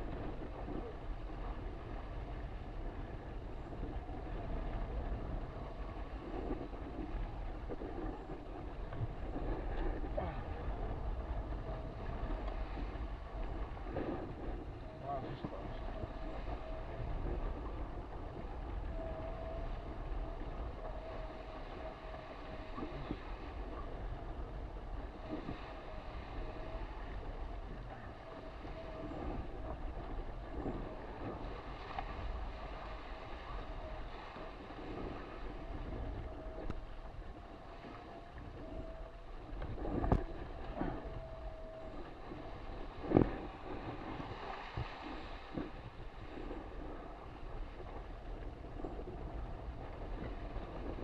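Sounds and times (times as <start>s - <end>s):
water rushing past boat: 0.0s - 51.0s
wind buffeting microphone: 0.0s - 51.0s
thin steady whistle: 14.0s - 17.9s, 18.8s - 23.9s, 25.2s - 45.8s.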